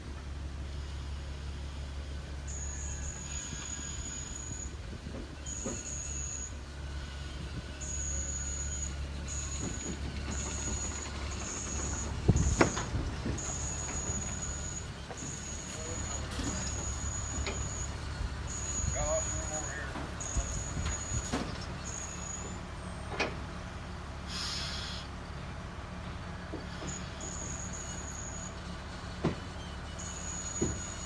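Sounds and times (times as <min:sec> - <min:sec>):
electric jack motors whining: 0:02.4 - 0:23.4.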